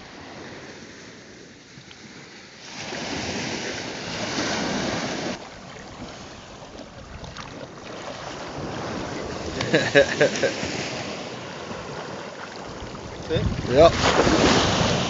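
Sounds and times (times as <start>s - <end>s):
small waves washing on shore: 0.0s - 15.0s
wind buffeting microphone: 3.1s - 15.0s.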